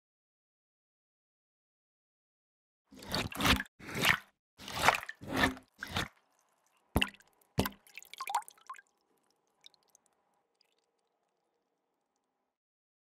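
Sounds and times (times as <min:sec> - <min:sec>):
small liquid plops: 0:03.0 - 0:12.3
ink drips: 0:04.8 - 0:11.4.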